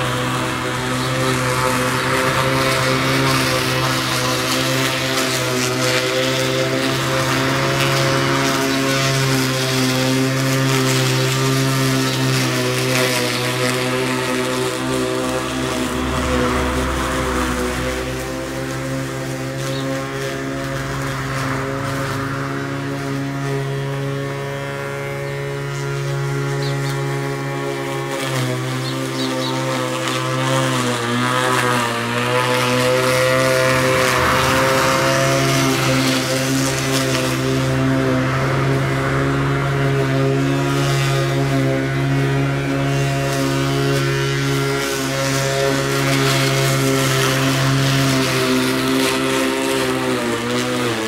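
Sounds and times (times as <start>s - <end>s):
blade hissing through grass: 0.0s - 51.0s
electric lawn mower hum: 0.0s - 51.0s
low rumble: 15.8s - 18.7s.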